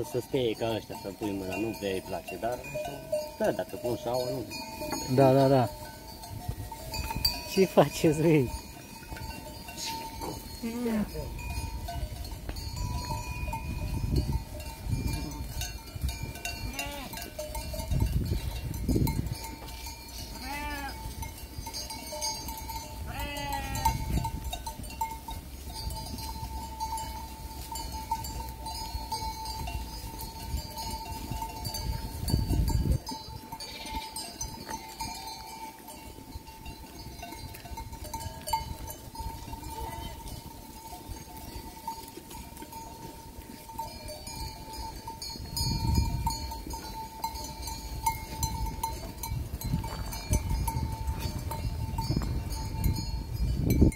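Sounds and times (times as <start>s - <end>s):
sheep bells clinking: 0.0s - 53.9s
sheep bleating: 16.6s - 17.2s, 20.4s - 21.0s, 23.1s - 24.0s, 33.6s - 34.2s, 39.7s - 40.2s.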